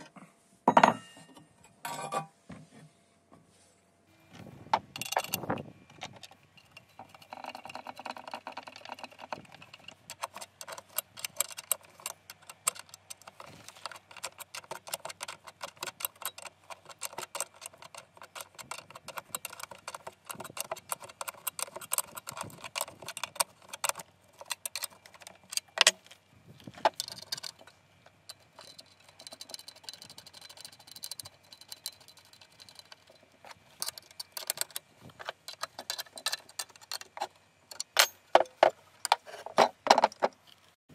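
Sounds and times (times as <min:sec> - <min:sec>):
wrench clinking on bolts: 0:04.9 - 0:26.0, 0:26.9 - 0:38.7.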